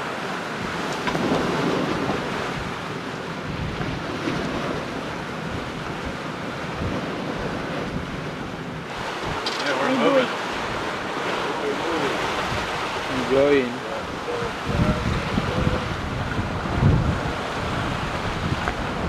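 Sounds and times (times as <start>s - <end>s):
waves rushing along hull: 0.0s - 19.0s
wind buffeting microphone: 0.0s - 19.0s.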